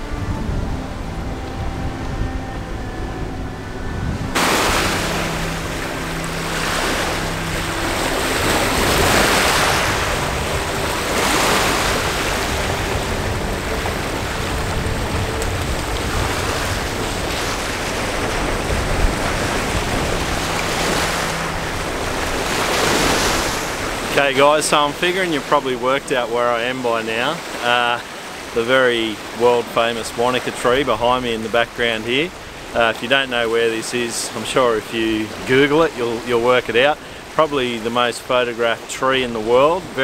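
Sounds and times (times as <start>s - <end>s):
wind buffeting microphone: 0.0s - 26.6s
waves washing onto gravel shore: 4.4s - 40.0s.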